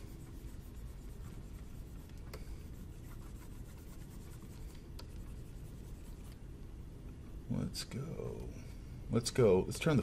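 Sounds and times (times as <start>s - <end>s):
stylus scratching on tablet: 0.0s - 6.4s.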